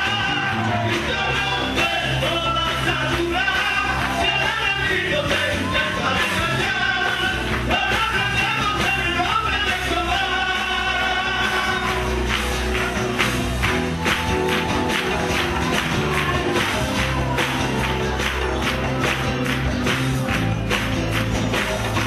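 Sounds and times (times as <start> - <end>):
men singing in harmony: 0.0 - 12.1
acoustic guitar and bass: 0.0 - 22.0.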